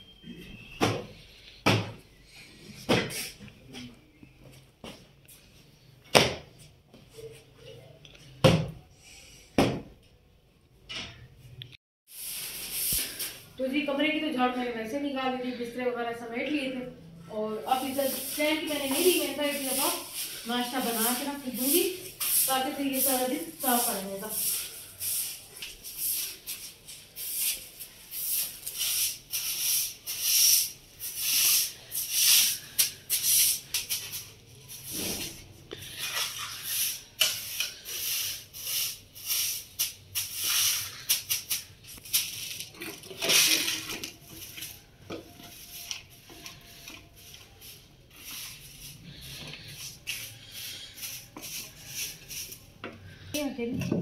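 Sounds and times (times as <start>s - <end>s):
broom swishing on stone floor: 12.1s - 13.6s, 17.6s - 52.8s.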